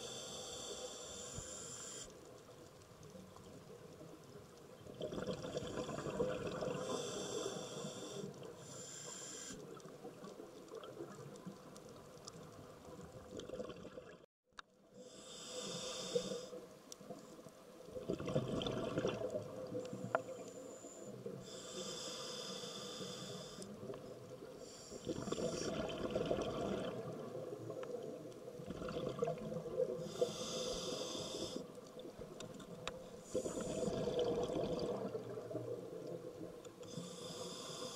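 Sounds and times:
regulator inhale hissing: 0.0s - 2.2s, 6.8s - 9.8s, 15.0s - 16.6s, 20.1s - 23.8s, 24.6s - 25.7s, 30.0s - 31.8s, 36.8s - 37.9s
exhaled bubbles rushing: 4.9s - 6.9s, 13.1s - 14.3s, 18.0s - 19.8s, 25.1s - 27.7s, 28.6s - 30.0s, 33.3s - 36.4s.

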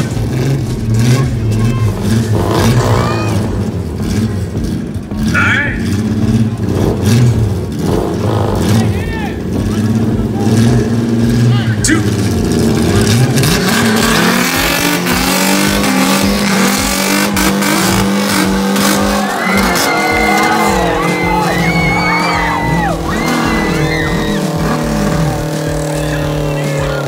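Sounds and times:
drag car engine revving: 0.0s - 27.0s
tyres squealing: 10.3s - 27.0s.

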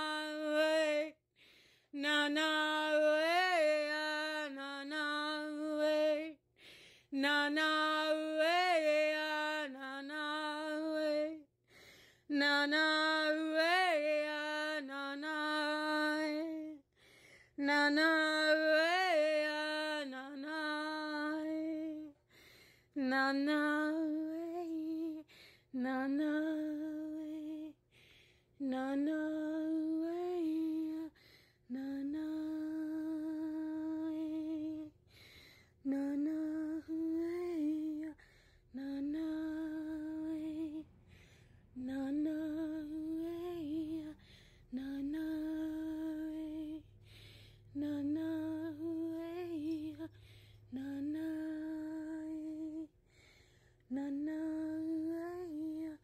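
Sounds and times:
woman singing long held notes: 0.0s - 27.9s, 28.6s - 56.0s
woman breathing: 1.2s - 2.0s, 6.4s - 7.2s, 11.5s - 12.3s, 16.8s - 17.6s, 22.1s - 23.0s, 25.2s - 25.8s, 27.8s - 28.6s, 31.1s - 31.8s, 34.9s - 35.9s, 38.1s - 38.8s, 40.8s - 41.8s, 44.1s - 45.0s, 46.8s - 47.8s, 50.1s - 50.8s, 52.8s - 54.0s.

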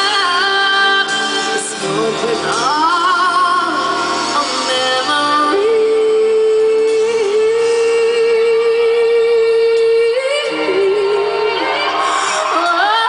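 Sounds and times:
piano accompaniment: 0.0s - 13.0s
woman singing: 0.0s - 13.0s.

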